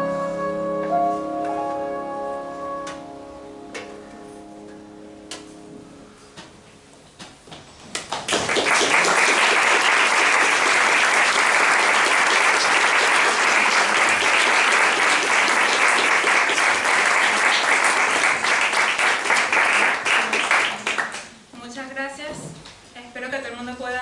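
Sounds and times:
audience applauding: 8.0s - 21.4s.

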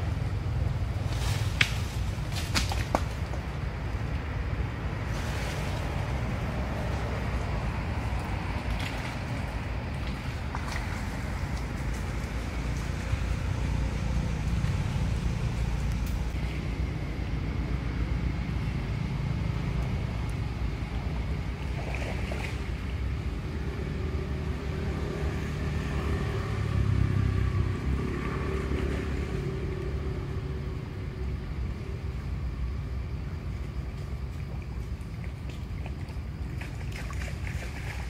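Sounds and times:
low rumbling background noise: 0.0s - 38.0s.

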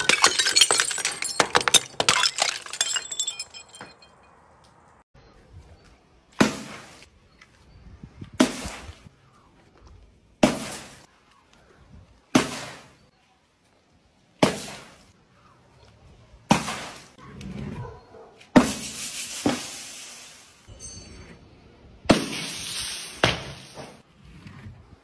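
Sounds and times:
objects smashing on wooden board: 0.0s - 4.0s.

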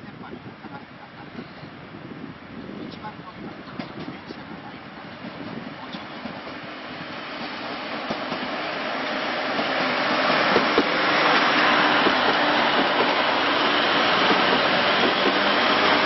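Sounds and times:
diesel train passing: 3.4s - 16.0s.

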